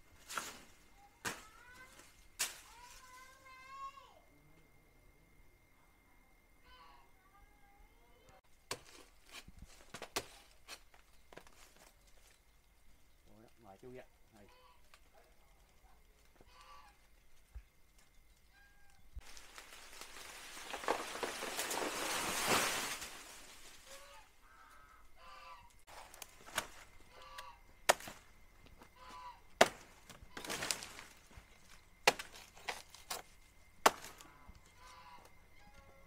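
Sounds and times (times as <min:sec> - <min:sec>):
rushing rustling noise: 0:19.2 - 0:24.2
blade chopping banana plant: 0:27.9 - 0:28.3, 0:29.6 - 0:30.9, 0:32.0 - 0:33.2, 0:33.8 - 0:34.2.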